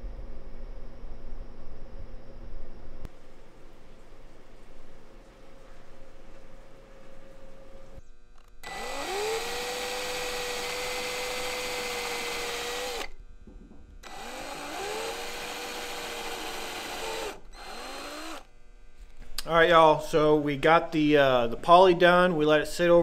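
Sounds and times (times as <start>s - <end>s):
electric drill boring into wood: 8.6s - 13.2s, 14.0s - 18.5s.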